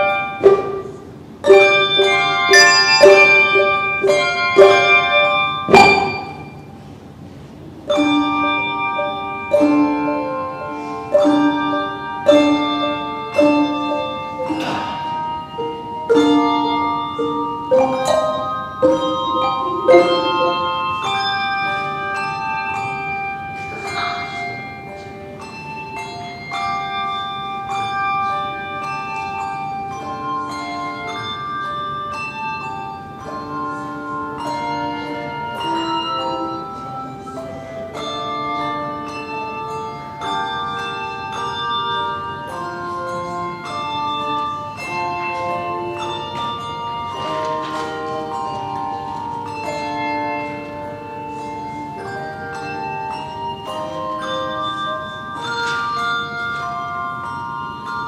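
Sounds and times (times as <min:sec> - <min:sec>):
handbell choir playing: 0:00.0 - 0:58.0.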